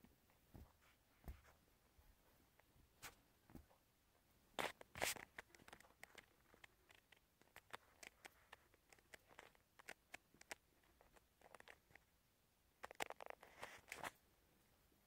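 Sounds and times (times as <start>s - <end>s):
handling clicks and rustles: 4.6s - 12.1s.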